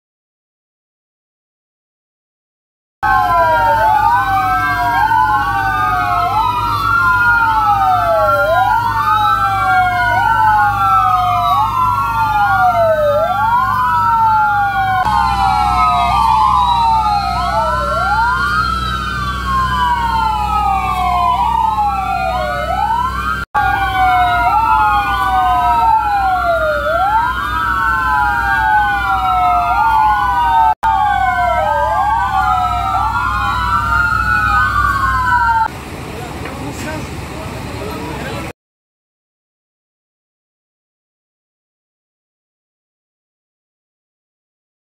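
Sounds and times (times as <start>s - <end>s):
low engine rumble: 3.0s - 38.5s
fire truck sirens wailing: 3.0s - 38.6s.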